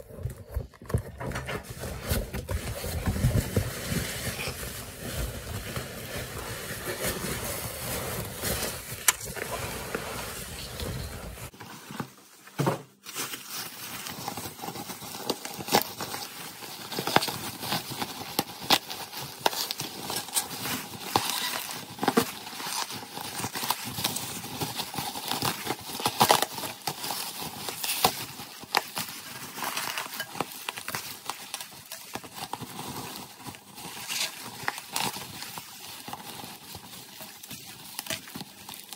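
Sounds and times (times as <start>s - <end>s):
cardboard box rustling and scraping: 0.0s - 12.2s
bubble wrap crinkling: 0.0s - 38.9s.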